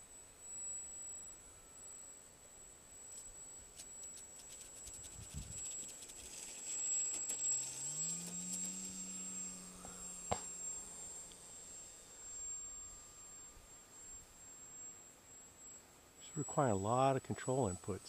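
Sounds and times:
electric motor whining: 3.0s - 15.8s.

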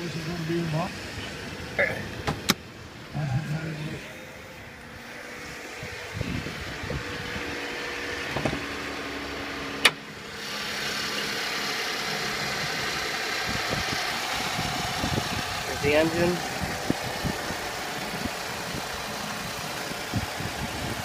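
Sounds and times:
car engine idling: 0.0s - 21.0s
hood latch click: 2.2s - 2.6s, 9.8s - 10.0s.

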